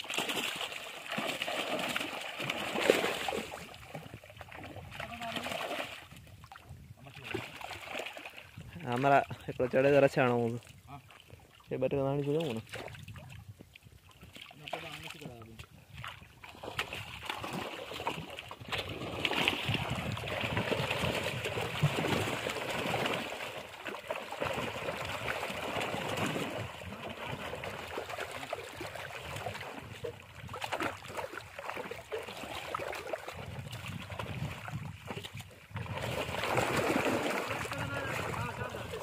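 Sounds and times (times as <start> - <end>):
fish splashing in net: 0.0 - 6.1, 7.2 - 8.5, 16.0 - 39.0.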